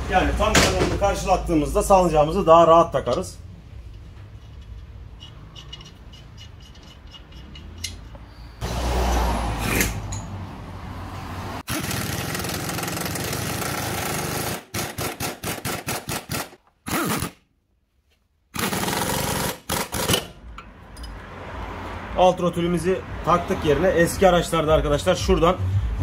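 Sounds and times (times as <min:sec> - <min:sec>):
pneumatic impact wrench hammering: 0:11.7 - 0:17.4, 0:18.5 - 0:20.6.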